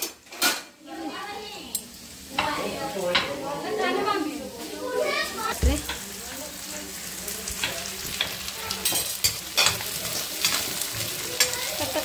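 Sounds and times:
onion sizzling in a pan: 0:00.0 - 0:12.0
spoon scraping and knocking pan: 0:07.4 - 0:11.6.

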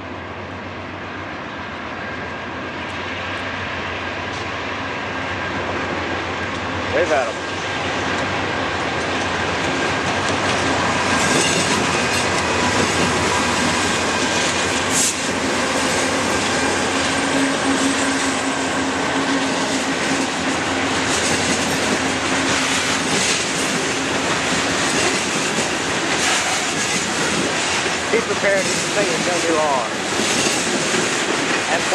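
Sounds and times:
diesel locomotives rumbling: 0:00.0 - 0:31.9
train wheels on rails: 0:00.0 - 0:31.9
clicking over rail joints: 0:08.0 - 0:17.8.

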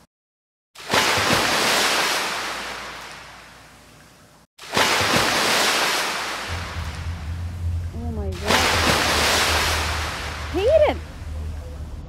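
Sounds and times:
loud rushing noise: 0:06.5 - 0:12.0.

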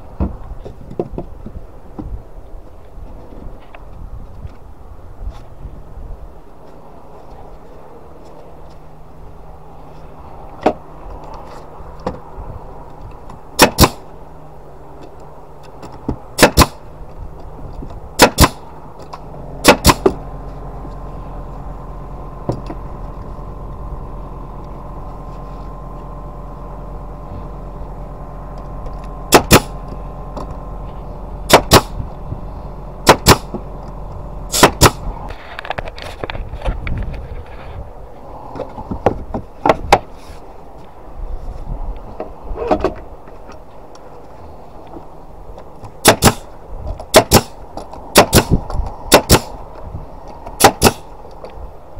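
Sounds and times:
steady motor hum: 0:00.0 - 0:51.9
nail gun firing into wood: 0:13.6 - 0:14.0, 0:16.4 - 0:16.9, 0:18.2 - 0:18.7, 0:19.6 - 0:20.2, 0:29.3 - 0:29.8, 0:31.5 - 0:32.0, 0:33.0 - 0:33.6, 0:34.5 - 0:35.0, 0:46.0 - 0:46.5, 0:47.1 - 0:49.6, 0:50.6 - 0:51.1.

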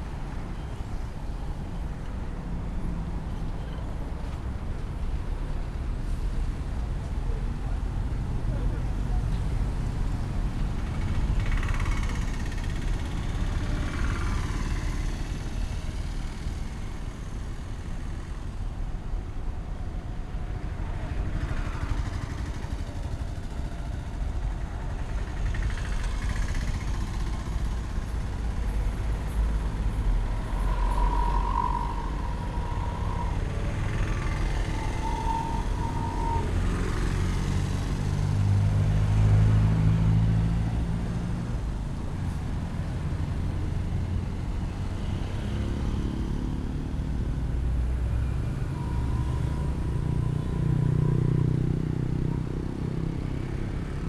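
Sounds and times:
road traffic rumble: 0:00.0 - 0:54.0
vehicle engine passing: 0:25.3 - 0:54.0.

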